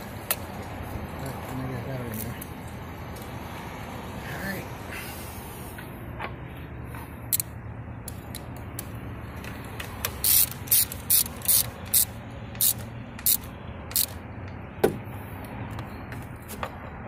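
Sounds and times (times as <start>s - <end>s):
ratchet wrench clicking: 7.3s - 14.2s.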